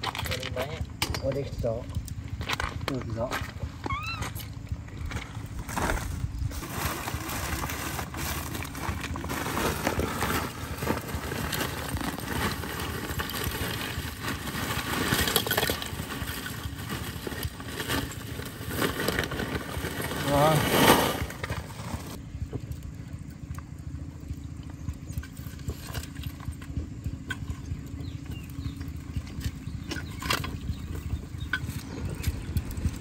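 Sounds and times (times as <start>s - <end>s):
steady low rumble: 0.0s - 33.0s
plastic bag crinkling: 6.5s - 22.2s.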